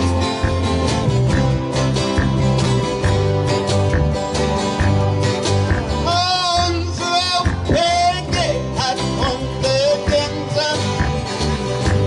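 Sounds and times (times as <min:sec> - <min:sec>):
wavering lead melody: 0:00.0 - 0:07.1
live band playing: 0:00.0 - 0:12.0.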